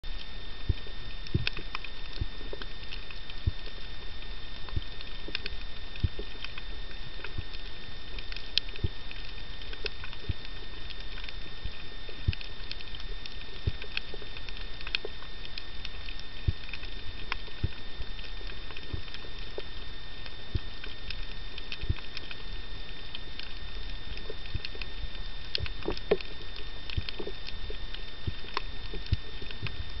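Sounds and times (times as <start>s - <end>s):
steady low underwater hiss: 0.0s - 30.0s
short clicks and crackles: 0.1s - 30.0s.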